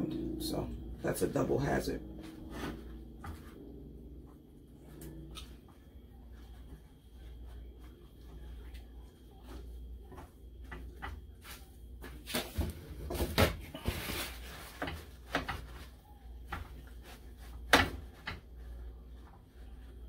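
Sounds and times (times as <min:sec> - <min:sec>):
paper towel rustling: 0:11.3 - 0:20.0.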